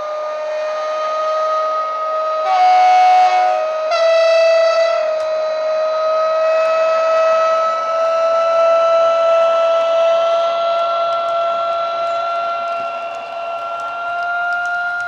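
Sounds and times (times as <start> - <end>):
locomotive horn blasts: 0.0 - 15.0
electric traction whine: 9.8 - 15.0.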